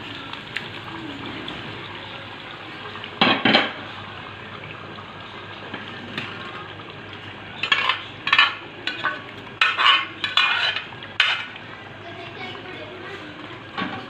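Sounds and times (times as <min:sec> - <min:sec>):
food sizzling in pan: 0:00.0 - 0:14.0
ladle scraping metal pot: 0:07.6 - 0:11.6.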